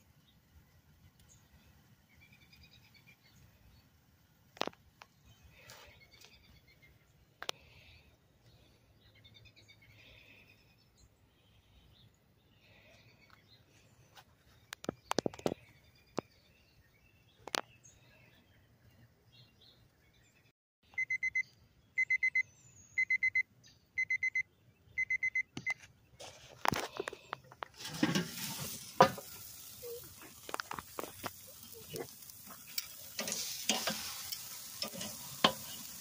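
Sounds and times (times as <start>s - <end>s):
thermometer short high beeps: 21.0s - 25.8s
steaks sizzling on grill: 27.8s - 36.0s.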